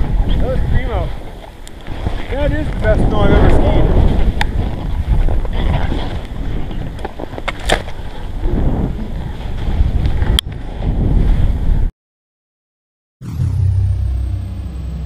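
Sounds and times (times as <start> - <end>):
wind buffeting microphone: 0.0 - 11.9.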